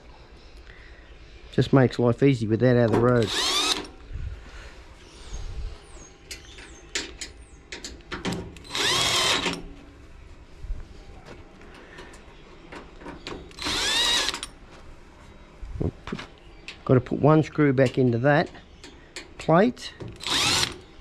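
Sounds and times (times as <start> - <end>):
cordless drill whining: 3.2 - 3.9, 8.7 - 9.6, 13.6 - 14.5, 20.2 - 20.8
screws and tools clicking: 3.2 - 3.9, 13.5 - 14.5, 20.2 - 20.8.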